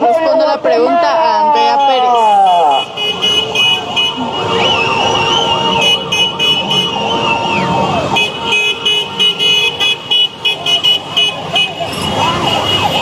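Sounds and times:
walking crowd: 0:00.0 - 0:13.0
wavering high whistle: 0:04.6 - 0:06.0, 0:06.6 - 0:08.0.

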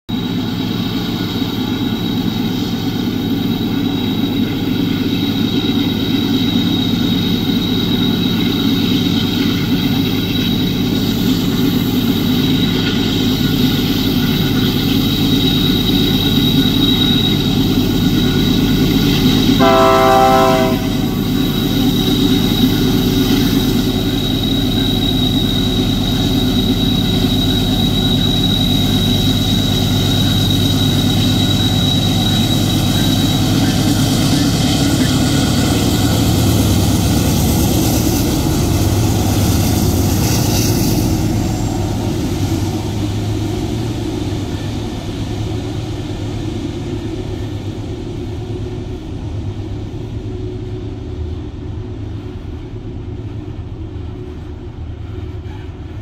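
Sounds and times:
locomotive engine rumbling: 0:00.1 - 0:56.0
locomotive horn blast: 0:19.6 - 0:21.5.

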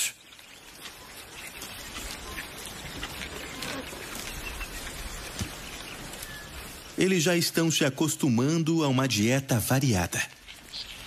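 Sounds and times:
dry grass being cropped: 0:00.2 - 0:07.1, 0:09.8 - 0:11.0.

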